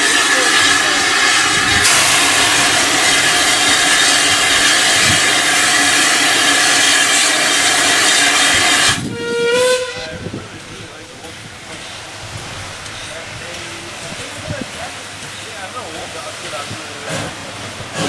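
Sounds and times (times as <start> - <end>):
steam hissing: 0.0 - 9.2, 10.3 - 18.0
steam whistle: 1.8 - 10.2.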